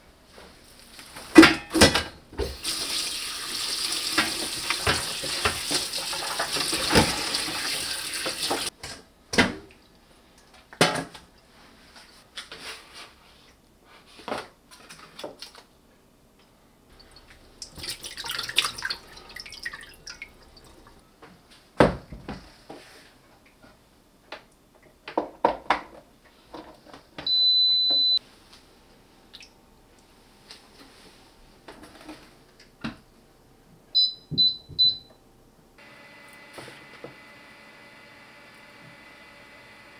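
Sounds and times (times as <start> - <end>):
tap water running into bowl: 2.6 - 8.7, 17.6 - 20.9
control dial beeps: 27.3 - 28.2.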